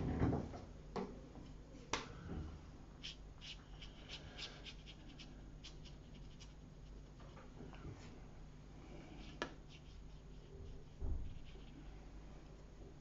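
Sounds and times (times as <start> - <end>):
low steady hum: 0.0 - 13.0
paintbrush scratching on paper: 3.0 - 7.3, 9.2 - 11.8.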